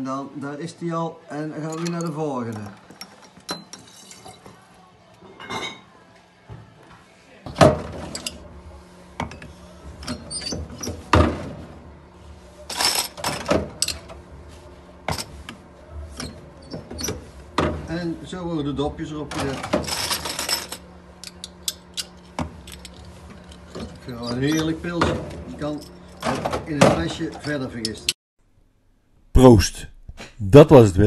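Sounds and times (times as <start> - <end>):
glass bottles clinking: 1.6 - 4.5, 19.6 - 27.0.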